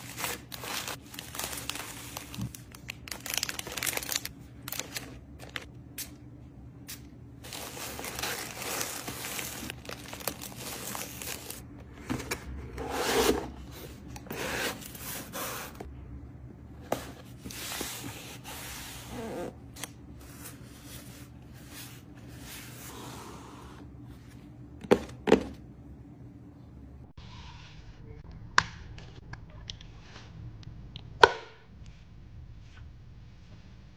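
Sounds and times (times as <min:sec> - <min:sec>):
plastic packaging crinkling: 0:00.0 - 0:05.7, 0:07.4 - 0:11.6.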